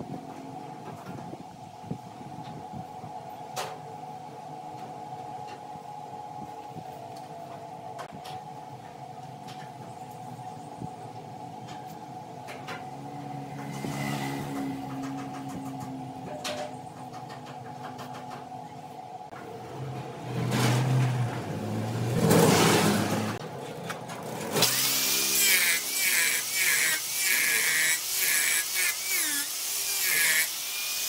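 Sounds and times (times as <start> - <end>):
wood lathe motor whine: 24.5 - 31.0.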